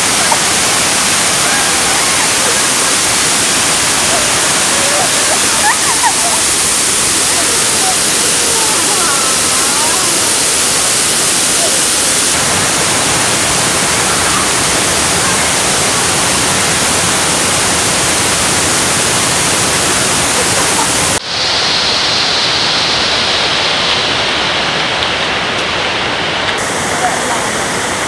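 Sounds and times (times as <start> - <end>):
waterfall and river rushing: 0.0 - 28.0.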